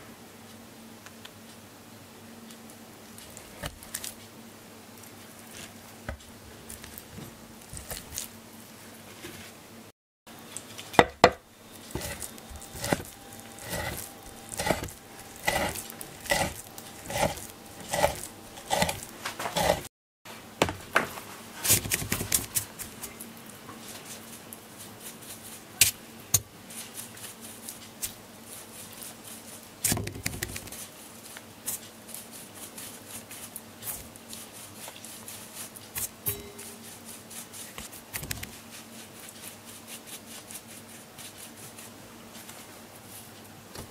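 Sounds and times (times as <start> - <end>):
knife cutting onto wooden board: 11.0 - 19.9
pastry brush brushing and tapping: 11.8 - 19.9.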